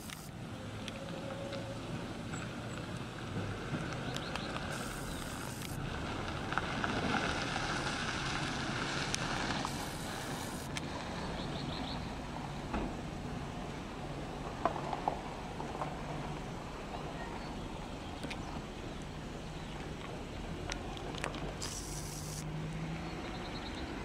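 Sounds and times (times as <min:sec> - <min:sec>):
city traffic hum: 0:00.0 - 0:24.0
brief hiss: 0:09.6 - 0:10.8, 0:21.6 - 0:22.4.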